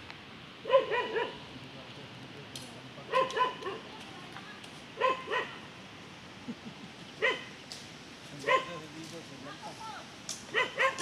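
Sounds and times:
dog barking: 0.7s - 1.4s, 3.1s - 3.8s, 5.0s - 5.6s, 7.2s - 7.5s, 8.4s - 8.8s, 10.5s - 11.0s.

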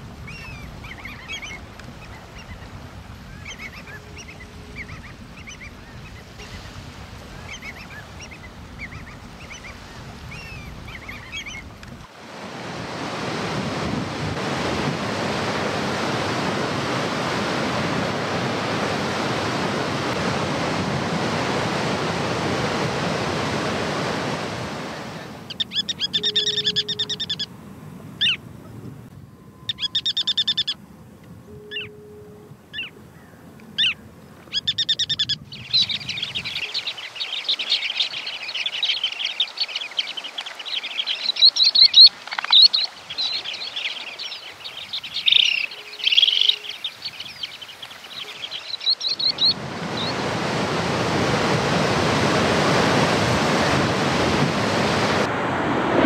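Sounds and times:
shorebird flock chattering: 0.0s - 11.7s, 25.5s - 27.5s, 33.8s - 50.1s
shorebird rattling calls: 0.2s - 11.7s, 25.5s - 27.5s, 29.7s - 30.8s, 33.8s - 49.5s.

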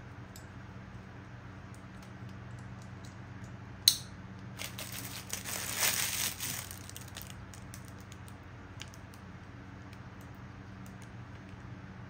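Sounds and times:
plastic crinkling rustle: 4.6s - 9.0s.

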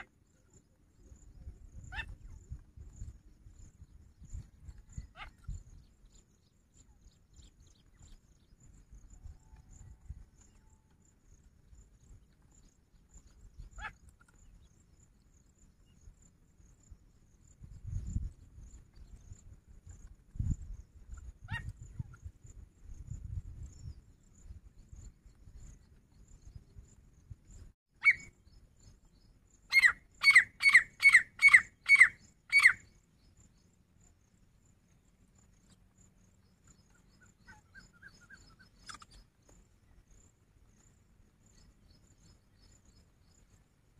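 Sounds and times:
high-pitched insect chirping: 10.3s - 43.8s
bird call: 28.0s - 28.4s, 29.7s - 32.9s
francolin calling: 28.0s - 33.7s, 35.4s - 43.8s.

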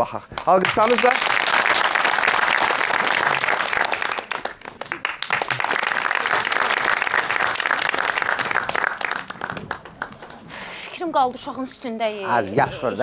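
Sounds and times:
audience applauding: 0.4s - 11.1s.

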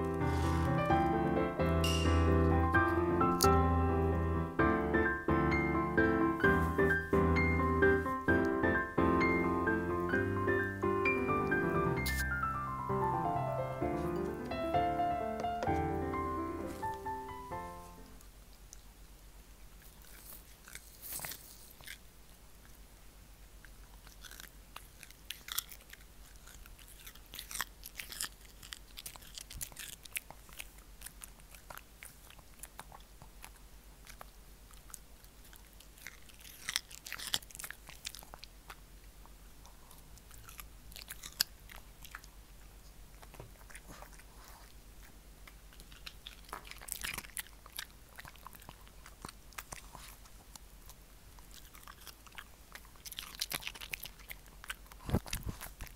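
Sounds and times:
dog crunching cucumber: 6.4s - 12.4s, 15.4s - 55.9s.

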